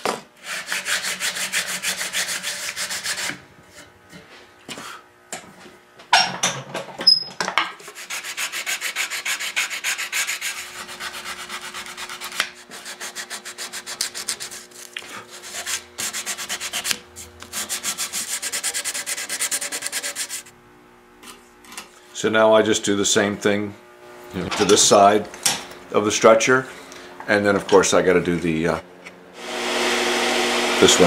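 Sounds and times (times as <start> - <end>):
sandpaper rubbing on wood: 0.4 - 3.4, 7.8 - 20.5.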